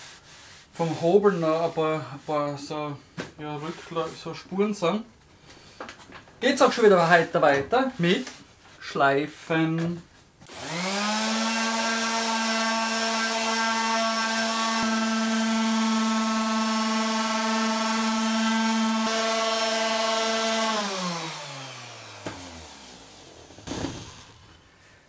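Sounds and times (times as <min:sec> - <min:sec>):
orbital sander motor humming: 0:10.5 - 0:24.7.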